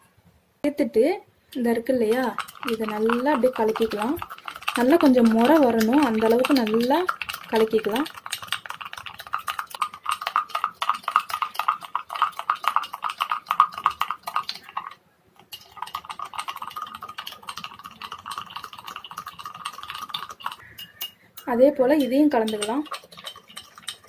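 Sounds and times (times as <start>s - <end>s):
metal spoon clinking in glass mug: 18.3s - 24.0s.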